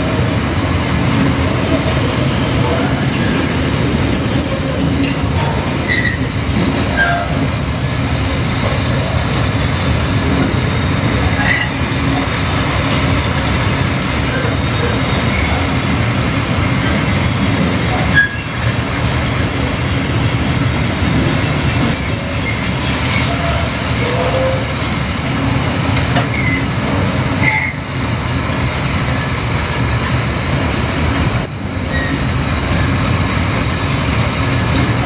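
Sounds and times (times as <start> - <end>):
steel wheels rumbling on rail: 0.0 - 35.0
wheel squeals: 4.3 - 6.3, 8.5 - 10.0, 17.9 - 18.7, 19.4 - 20.5, 22.4 - 26.7, 27.4 - 27.8, 31.9 - 33.0.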